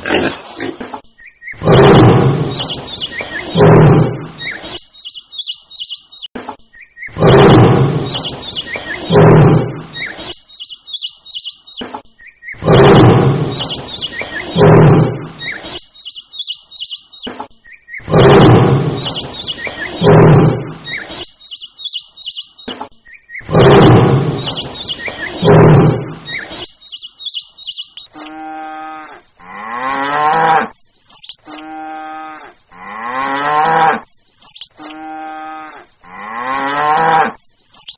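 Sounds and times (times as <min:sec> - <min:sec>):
birds chirping: 0:00.0 - 0:37.9
tiger roaring: 0:01.6 - 0:02.6, 0:03.4 - 0:04.3, 0:07.2 - 0:08.1, 0:08.9 - 0:09.9, 0:12.6 - 0:13.6, 0:14.3 - 0:15.4, 0:18.0 - 0:19.0, 0:19.8 - 0:20.8, 0:23.5 - 0:24.5, 0:25.2 - 0:26.4.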